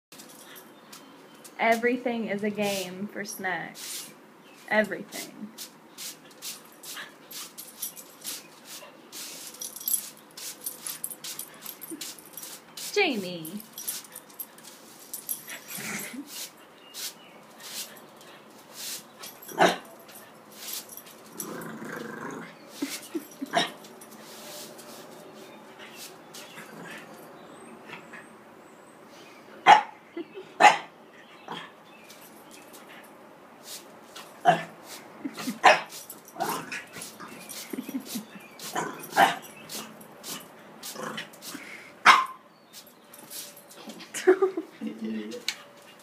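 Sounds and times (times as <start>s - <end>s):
broom swishing on concrete: 3.7s - 21.2s, 23.8s - 26.6s, 33.6s - 36.2s, 36.9s - 41.8s, 42.7s - 43.6s
puppy growling: 21.3s - 22.7s, 38.6s - 40.0s
puppy barking: 29.7s - 30.0s, 30.6s - 30.9s, 35.6s - 35.9s, 42.0s - 42.4s.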